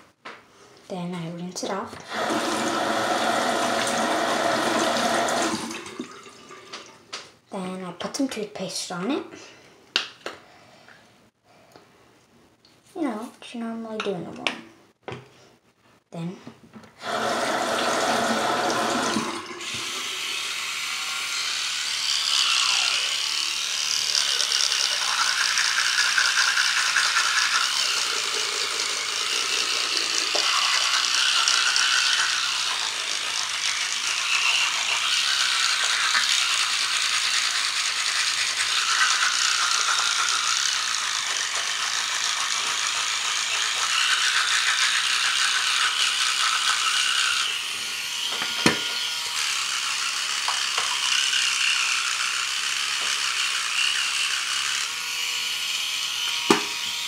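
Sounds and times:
tap running: 0:16.7 - 0:20.1, 0:48.2 - 0:49.0, 0:50.4 - 0:51.1, 0:56.5 - 0:56.9
toothbrush scrubbing teeth: 0:19.1 - 0:56.2.

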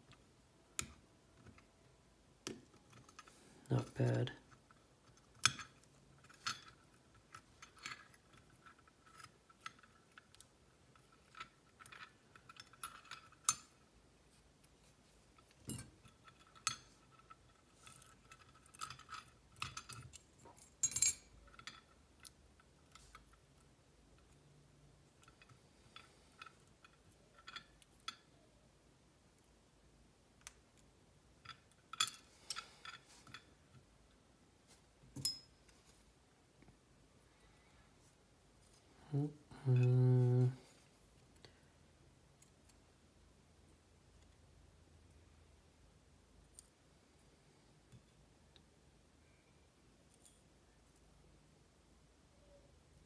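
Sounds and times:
small metal parts clicking: 0:02.4 - 0:13.9, 0:15.3 - 0:28.4.

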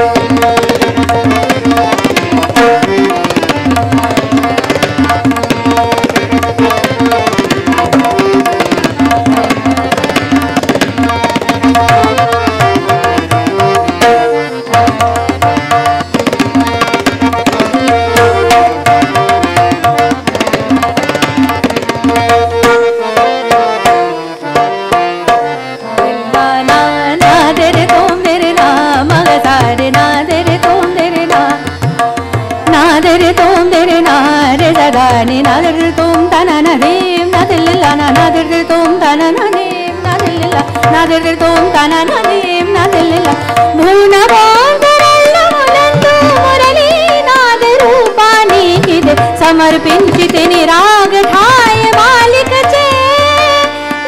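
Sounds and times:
harmonium: 0:00.0 - 0:54.0
tabla strokes: 0:00.0 - 0:54.0
tanpura drone: 0:00.0 - 0:54.0
woman singing ornamented melody: 0:25.9 - 0:31.9, 0:32.7 - 0:53.8.

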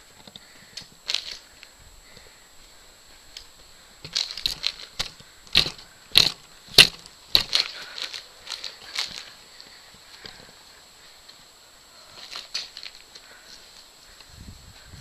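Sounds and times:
trampoline mat and springs knocking: 0:04.0 - 0:07.7.

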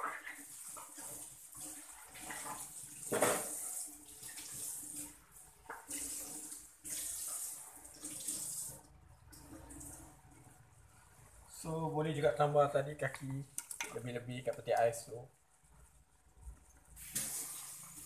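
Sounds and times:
water running from a tap: 0:00.0 - 0:10.1, 0:17.0 - 0:18.0.

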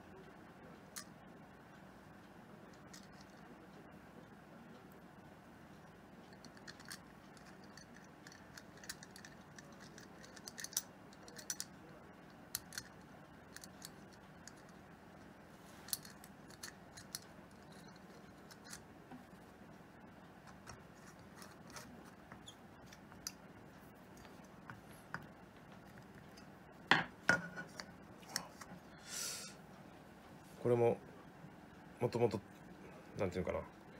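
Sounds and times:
small metal parts clicking: 0:06.3 - 0:11.8, 0:12.5 - 0:14.8, 0:15.9 - 0:18.8.

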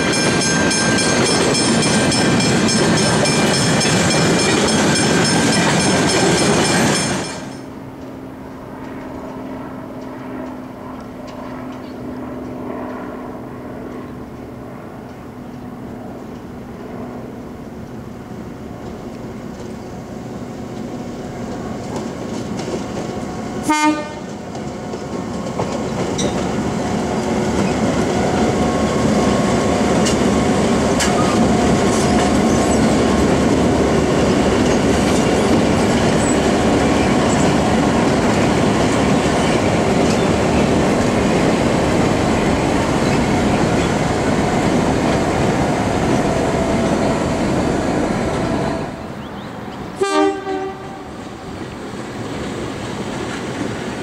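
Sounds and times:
wheels clattering on rails: 0:00.0 - 0:08.2, 0:20.6 - 0:49.5
diesel locomotive engines: 0:00.0 - 0:54.0.

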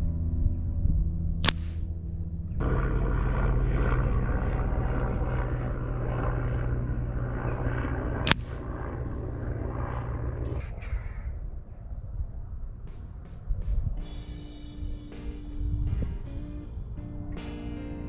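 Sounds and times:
low hum: 0:00.0 - 0:18.0
air rifle shot: 0:01.4 - 0:01.8, 0:08.2 - 0:08.6.

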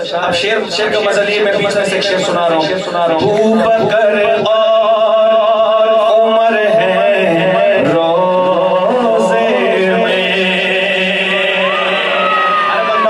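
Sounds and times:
man singing into a microphone: 0:00.0 - 0:13.0.

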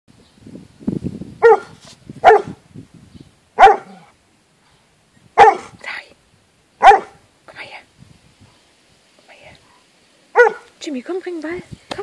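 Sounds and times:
dog barking: 0:01.4 - 0:02.6, 0:03.6 - 0:04.1, 0:05.4 - 0:05.7, 0:06.8 - 0:07.2, 0:10.3 - 0:10.7.

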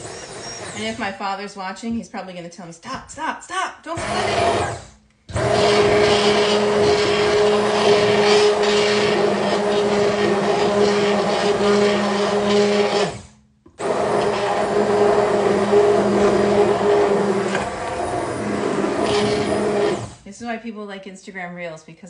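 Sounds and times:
immersion blender motor hum: 0:00.0 - 0:01.1, 0:04.0 - 0:20.2.

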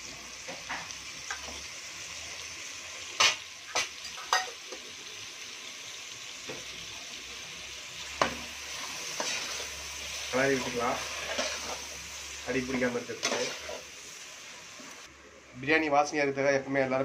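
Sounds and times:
food sizzling in a pot: 0:00.0 - 0:15.7.

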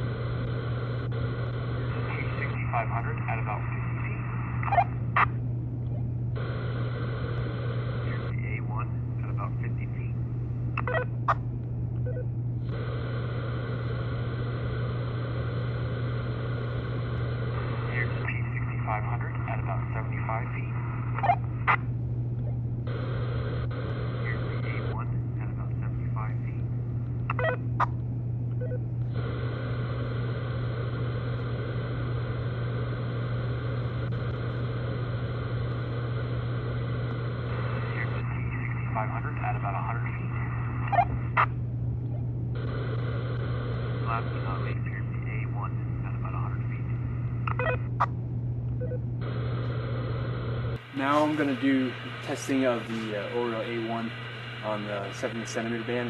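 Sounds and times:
radio static hiss: 0:00.0 - 0:11.4, 0:12.6 - 0:28.0, 0:28.6 - 0:48.1, 0:48.8 - 0:56.0
low hum: 0:00.0 - 0:56.0.

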